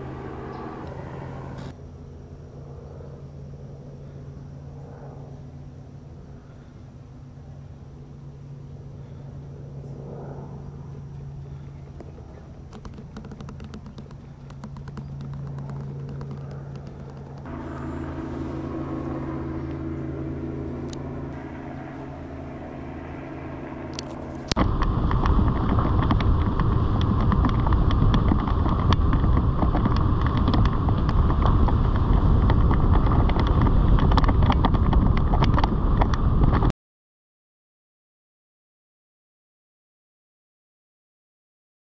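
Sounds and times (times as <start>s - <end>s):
car driving on unpaved road: 0.0s - 1.8s, 12.0s - 36.7s
small crackles: 12.0s - 17.5s, 23.9s - 36.7s.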